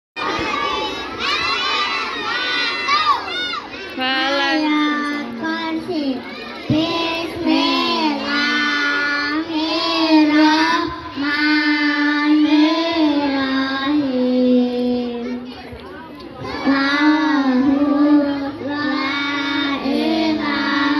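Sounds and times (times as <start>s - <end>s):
girls singing: 4.6s - 15.4s, 16.4s - 20.9s.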